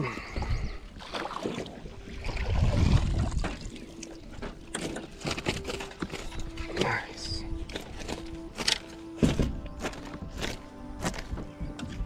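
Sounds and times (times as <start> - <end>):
water splashing: 0.9 - 5.2.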